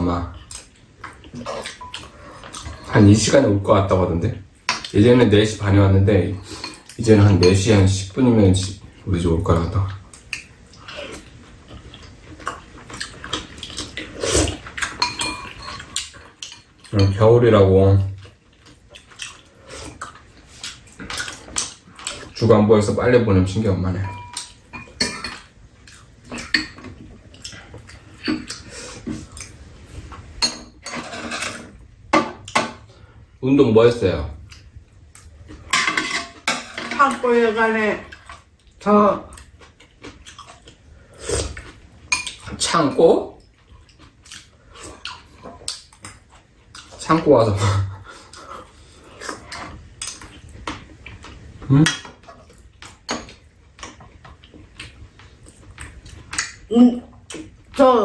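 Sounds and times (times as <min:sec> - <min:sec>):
spoons clinking on ceramic bowls: 0:15.0 - 0:17.2, 0:24.0 - 0:25.4.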